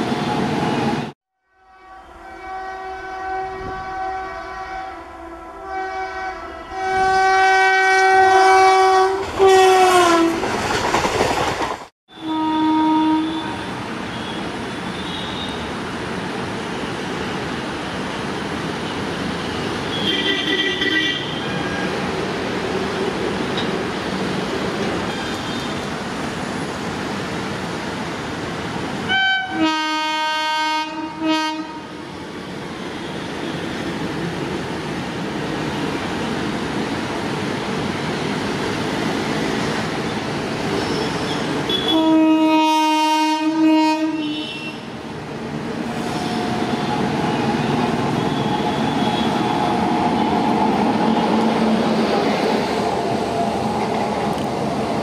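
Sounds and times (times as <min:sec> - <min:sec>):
locomotive air horn blasts: 0:01.4 - 0:10.4, 0:12.1 - 0:14.4, 0:29.1 - 0:32.0, 0:41.7 - 0:44.9
train rumble: 0:08.2 - 0:14.8, 0:45.3 - 0:55.0.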